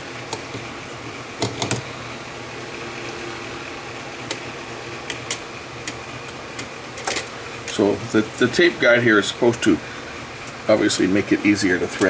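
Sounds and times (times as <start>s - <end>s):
steady hum: 0.0s - 12.0s
tape reel clicks and taps: 5.0s - 7.8s.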